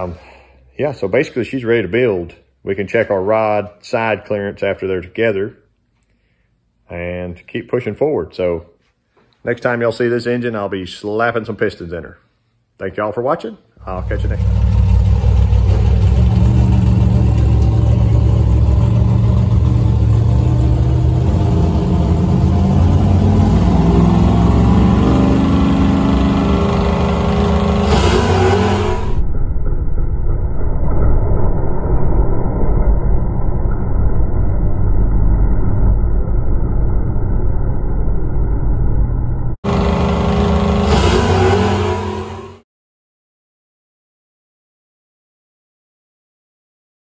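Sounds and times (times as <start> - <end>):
drag race car engines revving: 13.8 - 29.2, 39.7 - 42.6.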